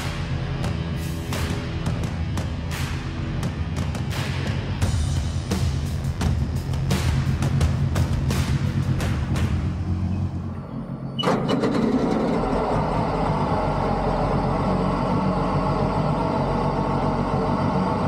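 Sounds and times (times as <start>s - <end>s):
jet boat engine running: 11.2s - 18.0s.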